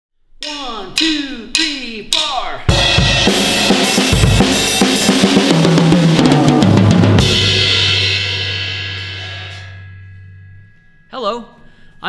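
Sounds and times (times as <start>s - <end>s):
drum kit fill: 0.4s - 12.0s
cymbal crash ringing: 2.7s - 12.0s.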